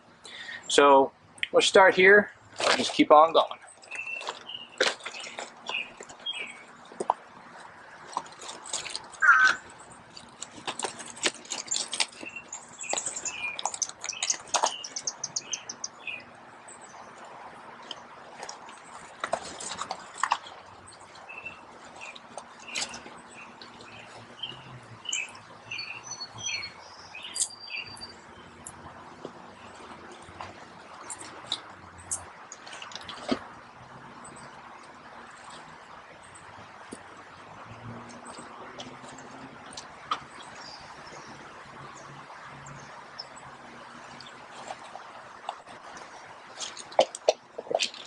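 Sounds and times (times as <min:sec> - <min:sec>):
birds chirping and singing: 0:03.4 - 0:06.8, 0:09.2 - 0:09.7, 0:11.6 - 0:17.1, 0:20.9 - 0:28.8
footsteps on gravel: 0:03.9 - 0:14.9.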